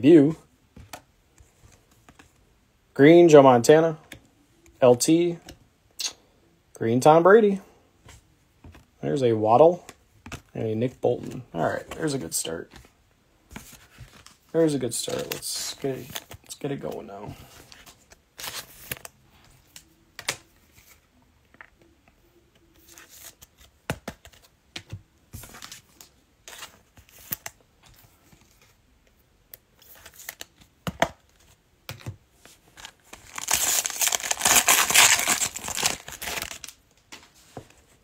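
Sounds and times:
plastic wrapper crinkling: 0:32.8 - 0:36.8
wrapper torn open: 0:33.2 - 0:36.8.

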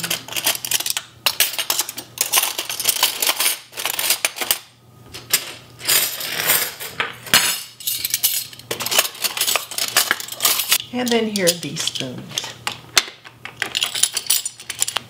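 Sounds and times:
cutlery clinking and jingling: 0:00.0 - 0:04.6, 0:05.4 - 0:10.8, 0:13.7 - 0:15.0.

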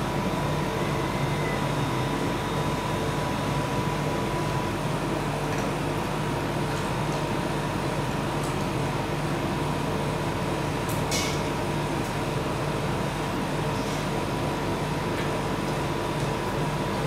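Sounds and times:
refrigeration unit humming: 0:00.0 - 0:17.0.

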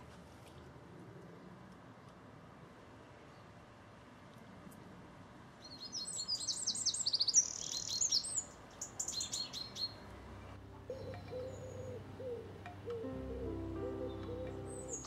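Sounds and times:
songbird trilling and whistling: 0:05.7 - 0:10.0, 0:10.9 - 0:15.0
soft music with low hum: 0:10.1 - 0:15.0.

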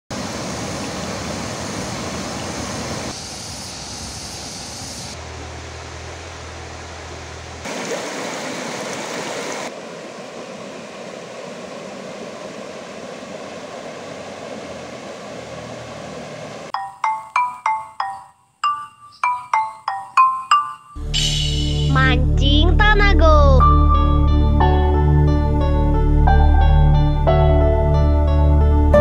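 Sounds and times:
stream babbling over stones: 0:07.6 - 0:16.7.

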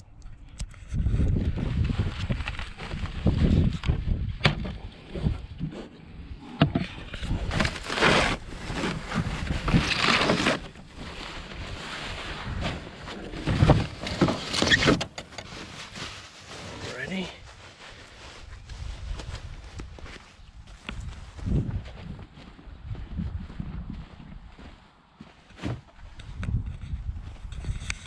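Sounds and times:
foam sheets and cardboard rustling: 0:07.2 - 0:19.1.

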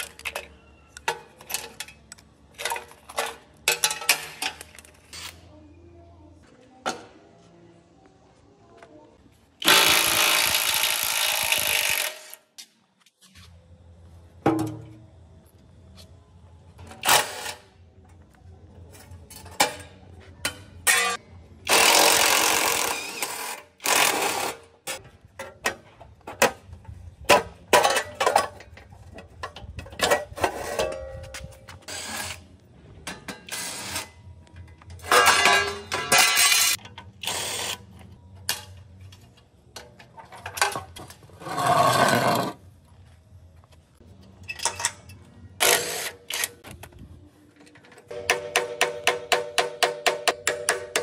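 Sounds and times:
rough noisy tool sound: 0:09.6 - 0:12.4.

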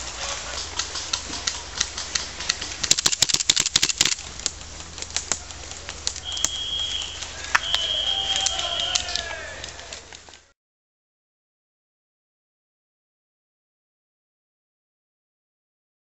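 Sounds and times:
airsoft gunfire: 0:01.9 - 0:04.3
whistle blowing: 0:06.2 - 0:09.6.

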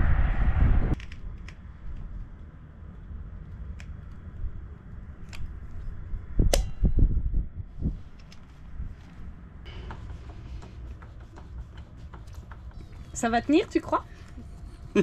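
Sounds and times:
steady low rumble: 0:00.0 - 0:11.1.

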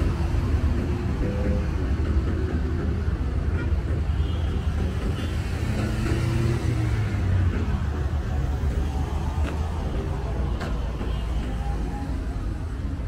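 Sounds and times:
low traffic rumble: 0:00.0 - 0:13.0
cars driving past: 0:04.7 - 0:12.7.

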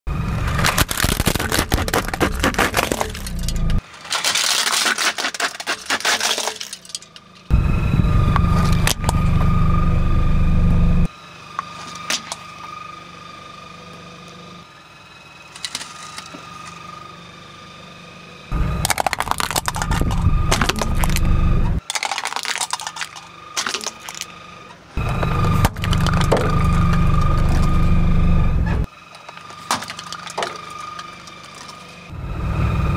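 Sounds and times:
plastic toy cracking and crunching: 0:00.4 - 0:07.5, 0:18.8 - 0:24.3, 0:25.0 - 0:27.9, 0:29.1 - 0:31.9
steady low rumble: 0:07.5 - 0:11.1, 0:18.5 - 0:21.8
tyre rumble on asphalt: 0:18.7 - 0:21.6, 0:25.0 - 0:31.9.

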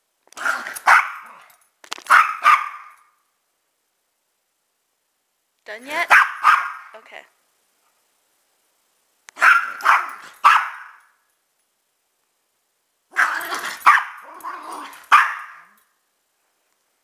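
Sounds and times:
dog barking: 0:00.8 - 0:01.4, 0:02.1 - 0:03.0, 0:06.1 - 0:06.9, 0:09.4 - 0:11.1, 0:13.2 - 0:15.8.

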